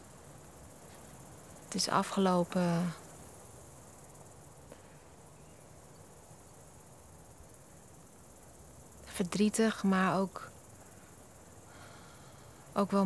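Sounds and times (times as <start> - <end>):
insects chirring: 0.0 - 13.0
steady low hiss: 0.0 - 13.0.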